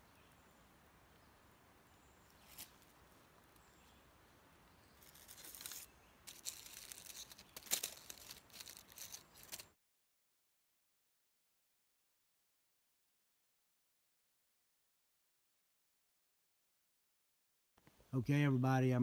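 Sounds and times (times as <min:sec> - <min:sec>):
dry leaves rustling: 0:02.3 - 0:04.0, 0:04.8 - 0:09.7.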